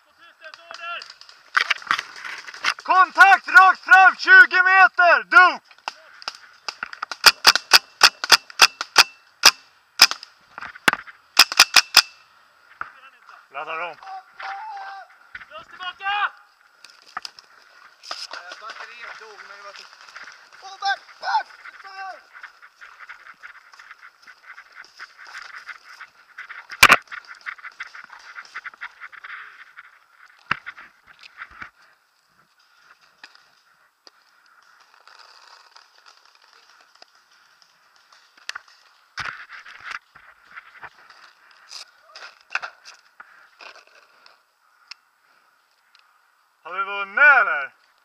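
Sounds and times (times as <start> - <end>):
rustling through undergrowth: 0.0 - 4.2, 5.6 - 11.4, 12.2 - 46.6
paintball marker shots: 7.1 - 10.2.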